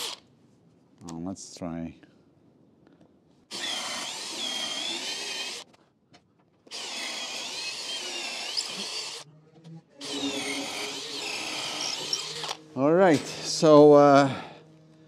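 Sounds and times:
cordless drill boring into wood: 0:00.0 - 0:00.2, 0:03.5 - 0:05.6, 0:06.7 - 0:09.2, 0:10.0 - 0:13.5.

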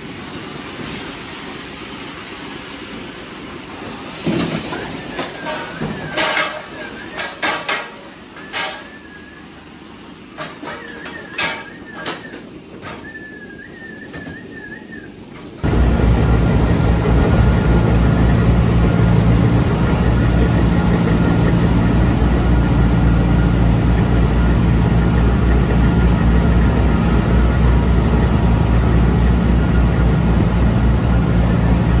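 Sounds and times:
bale chopper blowing straw: 0:15.6 - 0:32.0
low engine hum: 0:15.6 - 0:32.0.

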